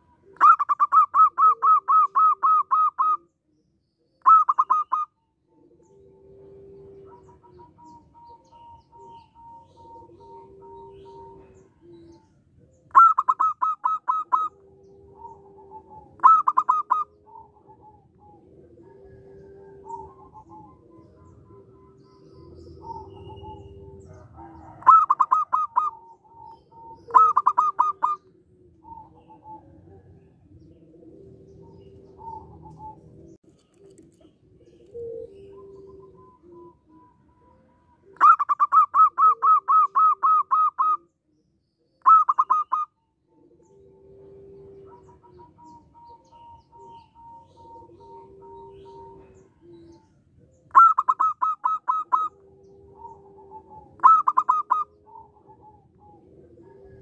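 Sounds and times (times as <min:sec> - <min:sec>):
low drawn-out dove coos: 0:00.0 - 0:57.0
dove staccato song: 0:54.0 - 0:54.9.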